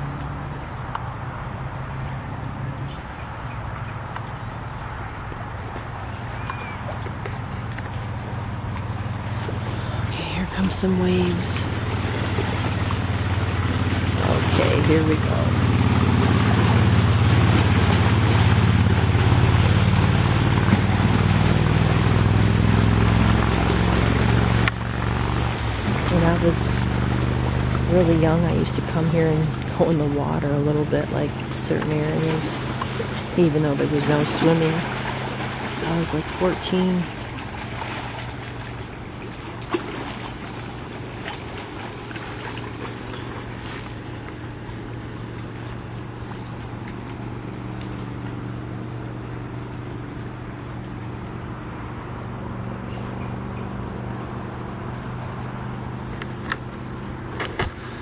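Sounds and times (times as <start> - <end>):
motorboat engine drone: 0.0 - 58.0
wind: 0.0 - 58.0
water splashing against rocks: 5.7 - 48.8.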